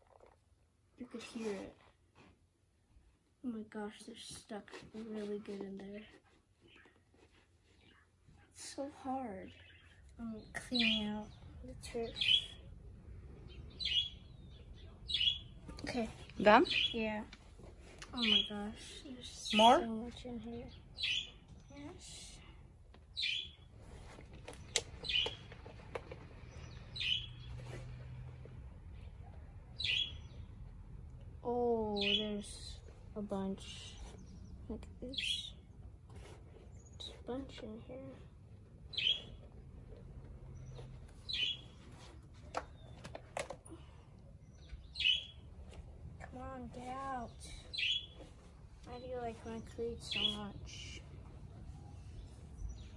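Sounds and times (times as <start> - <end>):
bird chirping: 8.8 - 17.4, 18.0 - 28.2, 29.0 - 30.8, 31.8 - 35.8, 36.6 - 52.9
bird chirping call: 13.4 - 15.6, 24.6 - 25.6, 26.4 - 27.8, 29.8 - 30.5, 38.9 - 39.4, 40.6 - 41.8, 44.4 - 45.5, 47.2 - 48.3.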